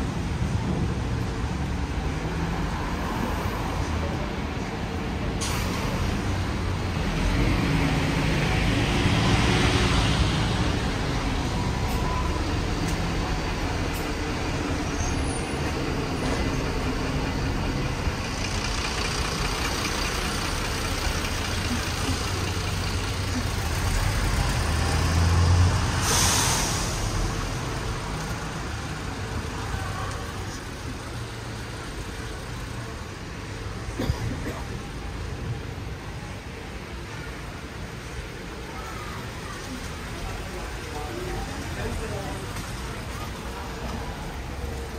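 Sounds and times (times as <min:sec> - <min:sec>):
bus engine: 0:00.0 - 0:44.9
passing cars: 0:00.0 - 0:44.9.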